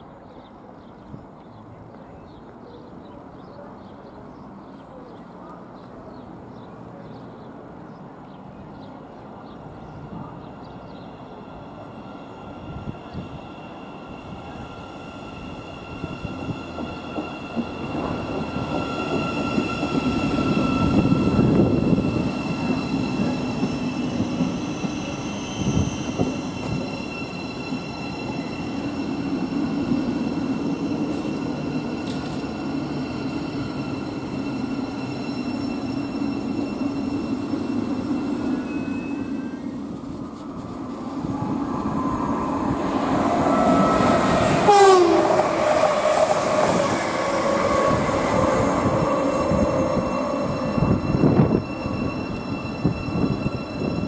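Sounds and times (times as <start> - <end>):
train rumble: 7.5 - 54.0
high whining tones: 11.0 - 54.0.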